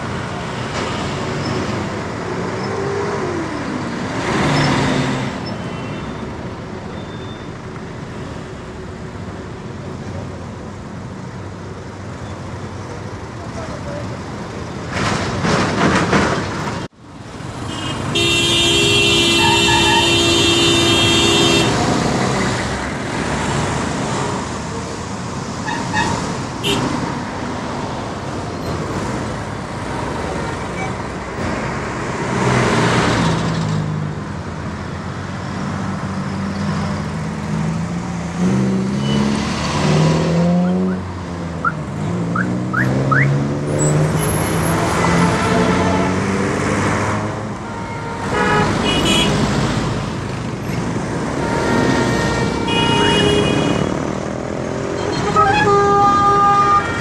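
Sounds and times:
road traffic noise: 0:00.0 - 0:57.0
car horn toots: 0:17.7 - 0:21.8, 0:47.6 - 0:49.4, 0:51.3 - 0:53.9, 0:55.0 - 0:57.0.

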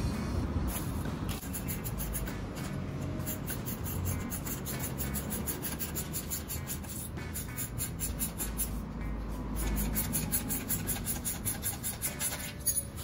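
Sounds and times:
metal pipe scraping against joint: 0:09.4 - 0:13.0.

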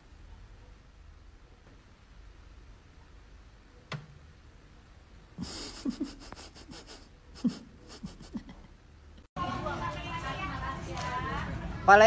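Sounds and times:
low room hum: 0:00.0 - 0:11.8
muffled laughter snorts: 0:05.4 - 0:08.7.

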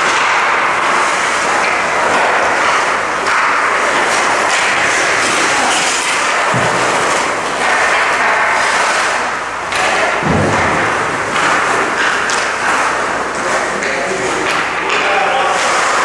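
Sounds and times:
ice skates scraping: 0:00.0 - 0:16.0.

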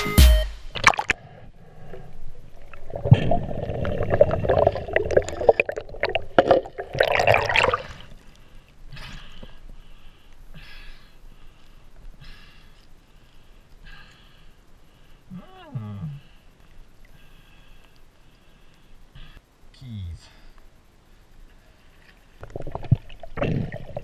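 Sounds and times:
underwater bubbling and churning: 0:00.8 - 0:10.5, 0:21.7 - 0:24.0
small clicks and crackles: 0:16.4 - 0:19.1.

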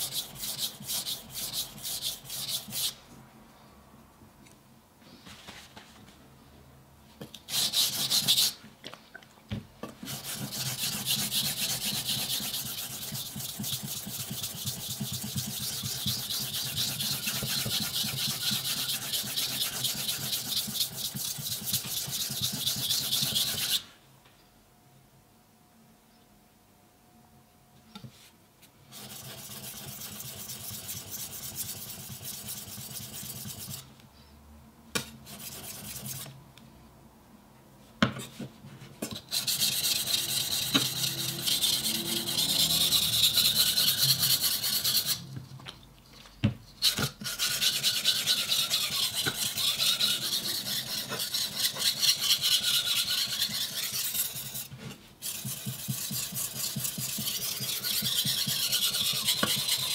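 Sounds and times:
knife rasping on whetstone: 0:10.1 - 0:23.8, 0:39.3 - 0:45.2, 0:47.2 - 0:59.9.

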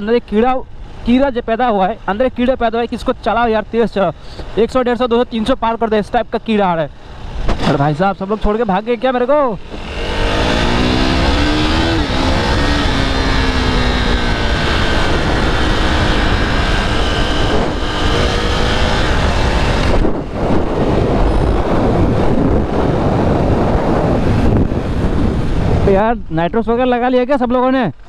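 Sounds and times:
wind noise on microphone: 0:09.5 - 0:26.6
motorcycle engine running: 0:09.6 - 0:25.8.

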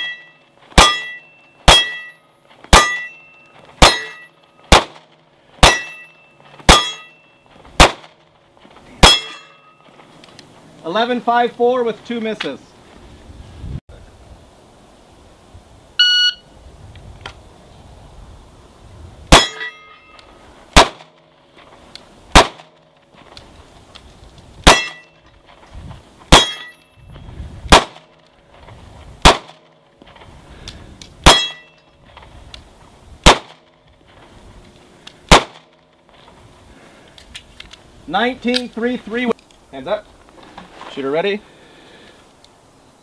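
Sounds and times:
steel plate ringing: 0:00.0 - 0:04.6, 0:05.6 - 0:07.5, 0:09.0 - 0:09.9, 0:19.3 - 0:20.2, 0:24.7 - 0:25.2, 0:26.3 - 0:27.0, 0:31.3 - 0:32.0
pistol shots: 0:00.8 - 0:02.1, 0:03.8 - 0:06.1, 0:06.7 - 0:07.1, 0:07.8 - 0:08.2, 0:20.8 - 0:21.2, 0:22.3 - 0:22.8, 0:24.6 - 0:25.1, 0:26.3 - 0:26.7, 0:27.7 - 0:28.1, 0:29.2 - 0:29.7, 0:31.2 - 0:31.7, 0:33.2 - 0:33.6, 0:35.3 - 0:35.7
shot timer beep: 0:16.0 - 0:16.5.

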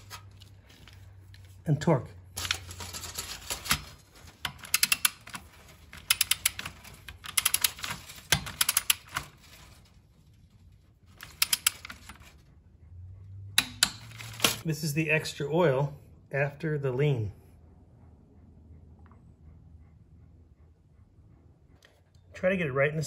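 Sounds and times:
ratchet wrench clicking: 0:04.4 - 0:09.3, 0:11.2 - 0:12.2.

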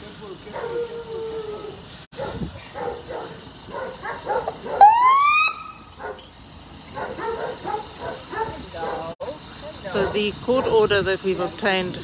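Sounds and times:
dogs barking: 0:00.5 - 0:05.0, 0:05.9 - 0:06.3, 0:06.9 - 0:09.2, 0:09.9 - 0:10.8.

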